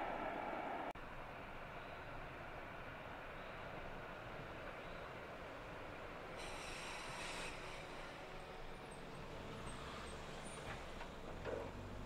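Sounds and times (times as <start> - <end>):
tram rumbling along track: 0.0 - 12.0
brief high hiss: 6.4 - 8.1.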